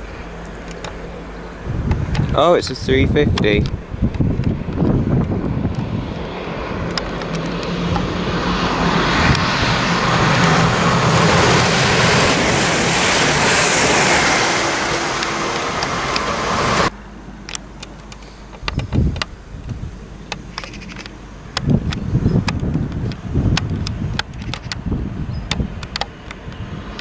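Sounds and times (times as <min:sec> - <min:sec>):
train rushing past: 0:01.6 - 0:16.9.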